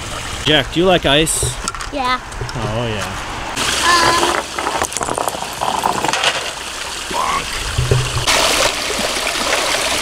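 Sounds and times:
water trickling over rocks: 3.6s - 10.0s.

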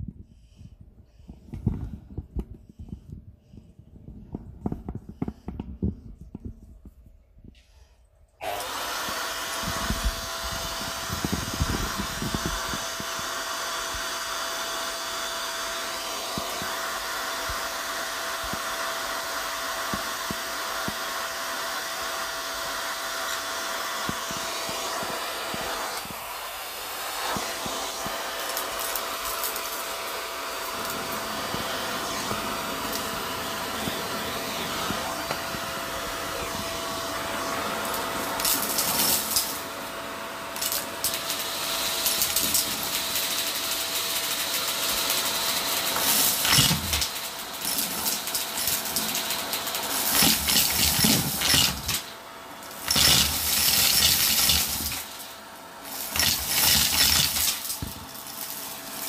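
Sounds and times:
vacuum cleaner motor whine: 8.4s - 59.0s
debris rattling up hose: 37.9s - 39.7s, 40.6s - 59.0s.

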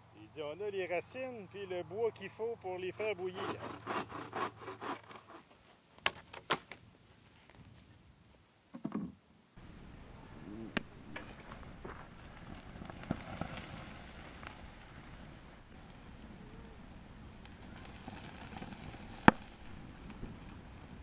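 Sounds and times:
wood fire crackling in stove: 9.6s - 21.0s
sharp cracks: 10.7s - 15.2s, 16.6s - 20.4s.

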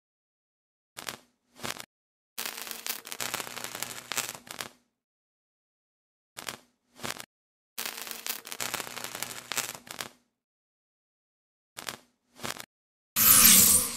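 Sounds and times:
crackling static bursts: 2.4s - 4.8s, 6.4s - 10.2s.

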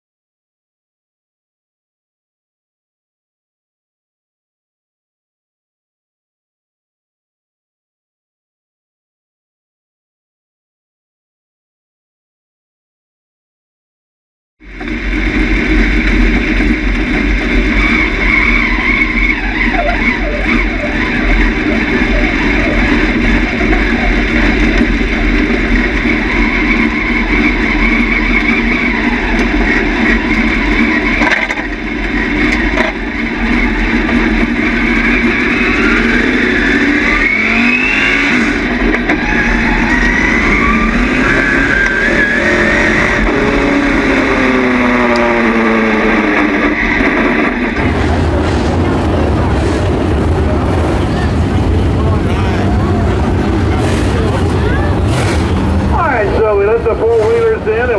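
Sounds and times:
race car engine revving: 14.6s - 57.9s.

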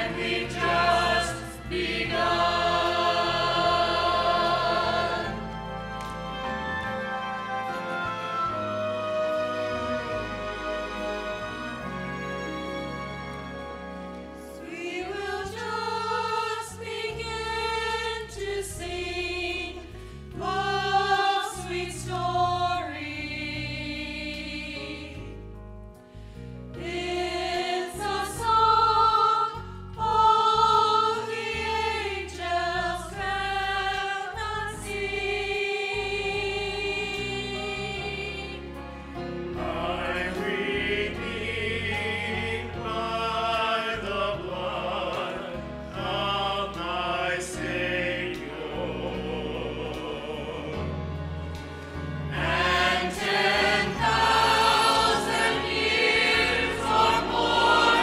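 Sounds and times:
choir singing a hymn: 0.0s - 25.4s, 26.7s - 58.0s.

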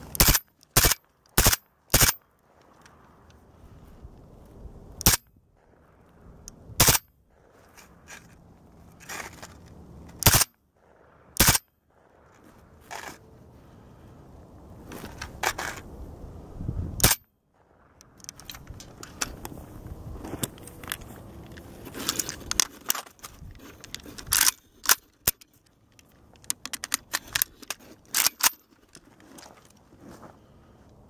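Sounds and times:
rifle handling metallic clicks: 0.0s - 3.4s, 5.0s - 13.3s, 17.9s - 29.8s
rifle gunshots: 0.2s - 2.2s, 6.8s - 7.1s, 10.2s - 12.3s.

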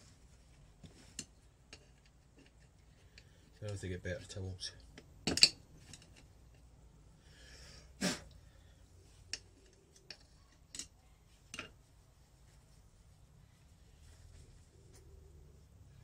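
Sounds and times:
metallic clicks of hand tools: 9.3s - 10.9s.

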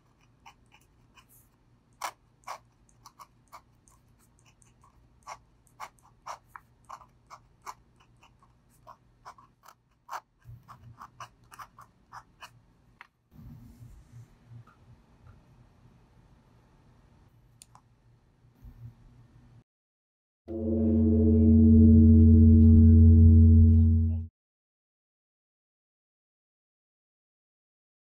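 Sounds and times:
pen nib scratching on paper: 0.0s - 12.6s.

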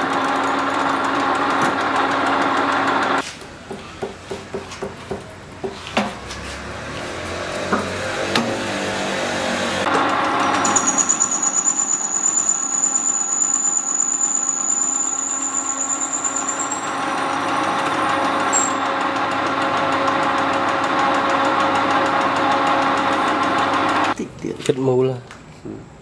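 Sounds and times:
lathe running: 0.0s - 3.2s, 7.2s - 24.2s
thin high whine: 10.4s - 18.9s.

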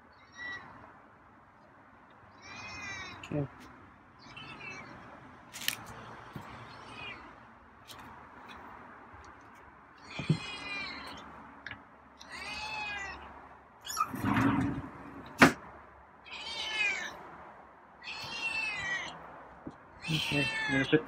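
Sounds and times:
cat meowing: 2.3s - 3.3s, 4.2s - 5.0s, 10.0s - 11.2s, 12.2s - 13.3s, 16.2s - 17.2s, 18.0s - 19.2s, 20.0s - 21.0s
rough rustle: 5.5s - 6.0s.

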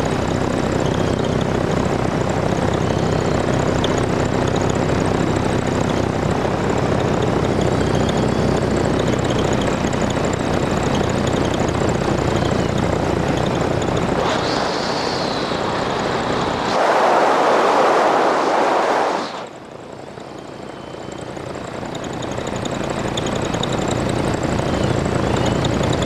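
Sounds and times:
piston engine droning: 0.0s - 26.0s
wind rush: 14.2s - 19.6s
loud rushing noise: 14.2s - 19.7s.

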